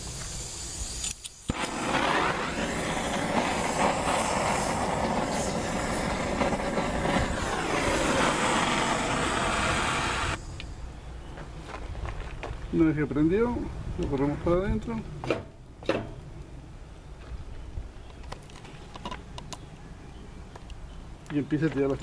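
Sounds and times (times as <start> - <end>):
flames rushing: 0.8 - 10.4.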